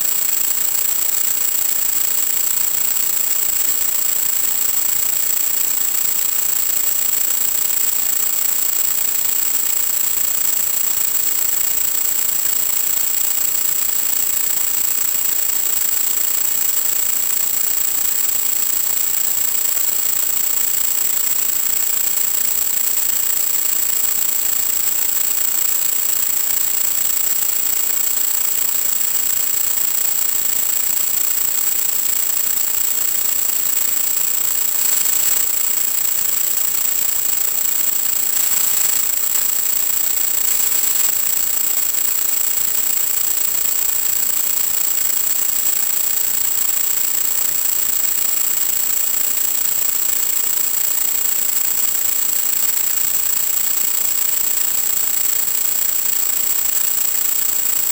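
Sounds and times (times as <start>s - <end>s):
thin high-pitched whine: 0.0s - 57.9s
static hiss: 31.3s - 44.3s.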